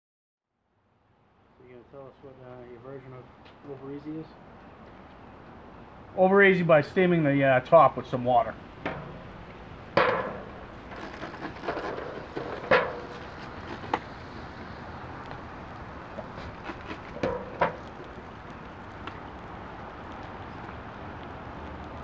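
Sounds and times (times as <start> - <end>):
water sizzling on hot griddle: 10.4 - 22.0.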